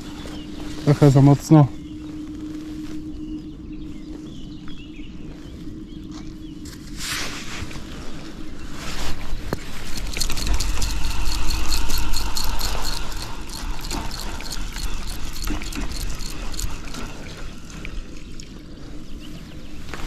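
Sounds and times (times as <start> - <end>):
low wind rumble: 0.0 - 20.0
fishing reel ticking: 9.7 - 17.6.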